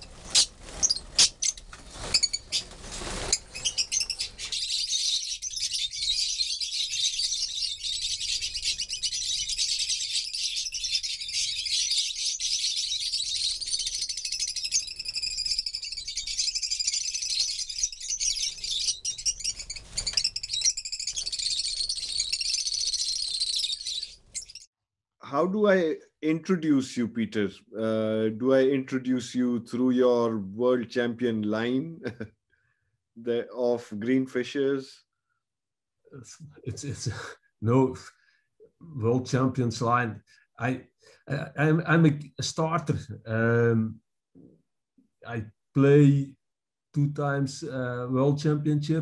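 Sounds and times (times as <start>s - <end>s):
lovebirds chirping: 0.0s - 24.7s.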